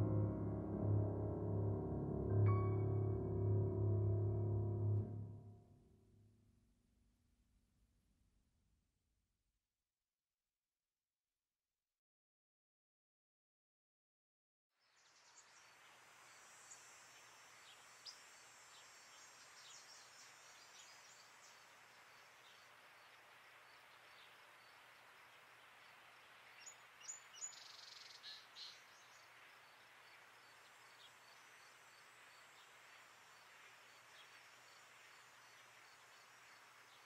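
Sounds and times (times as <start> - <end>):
steady hiss: 15.0 - 37.0
bird chirps: 26.5 - 31.6.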